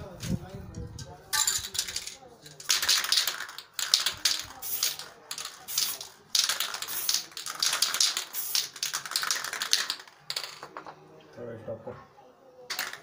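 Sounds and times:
spray-paint can hissing: 2.7s - 10.1s.

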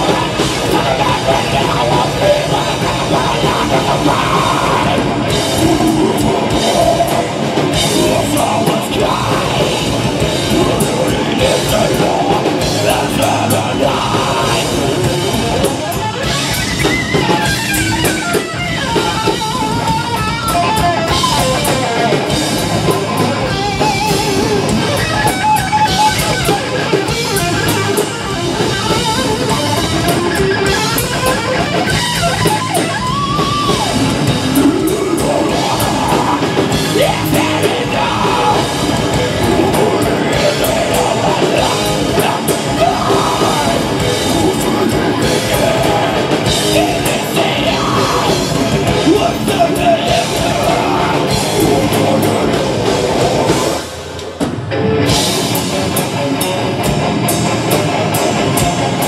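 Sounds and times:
person singing into microphone: 0.0s - 15.6s, 34.5s - 53.8s
bass guitar: 0.0s - 59.0s
distorted electric guitar: 0.0s - 59.0s
drum kit: 0.0s - 59.0s.

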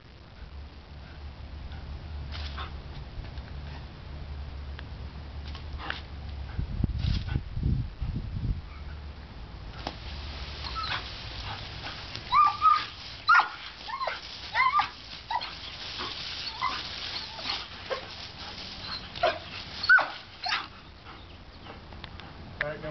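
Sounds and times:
hose spray hissing: 9.8s - 20.5s
puppy whining and yipping: 10.6s - 11.1s, 12.2s - 18.1s, 18.8s - 21.7s.

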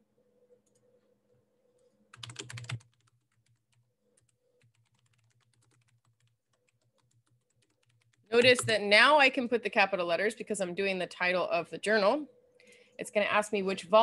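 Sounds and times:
typing on a computer keyboard: 2.1s - 8.6s.

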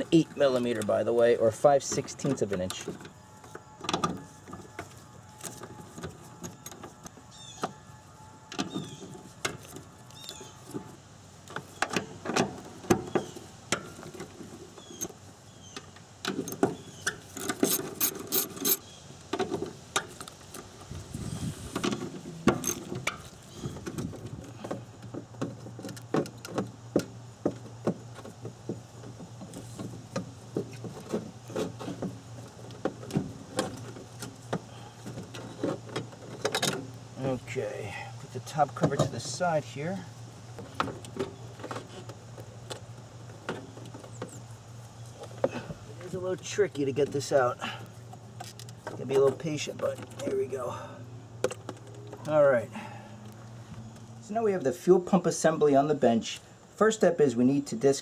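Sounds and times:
metal parts clinking: 17.4s - 18.8s.

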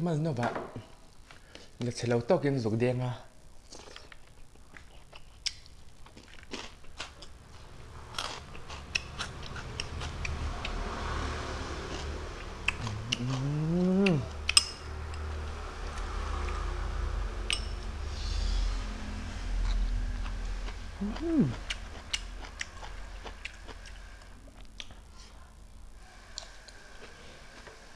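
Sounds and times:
man chewing and smacking: 3.7s - 10.8s, 11.8s - 16.6s, 19.6s - 25.2s
man humming: 12.7s - 14.4s, 21.0s - 21.8s.

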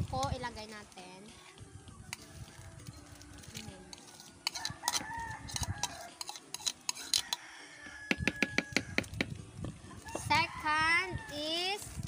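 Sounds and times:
spoon tapping: 3.9s - 7.4s, 8.1s - 9.2s
metal spoon scraping ceramic bowl: 3.9s - 7.5s.

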